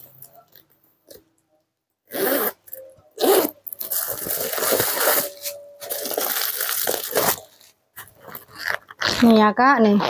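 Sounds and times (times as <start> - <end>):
metal zipper being pulled: 2.1 - 2.6, 3.2 - 7.5.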